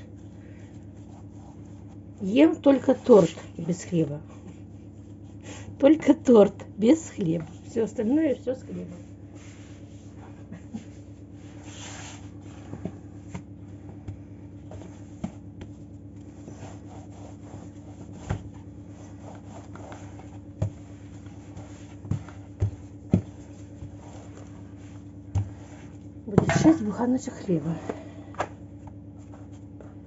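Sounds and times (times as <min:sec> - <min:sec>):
rolling pin rubbing on dough: 0:00.0 - 0:27.2.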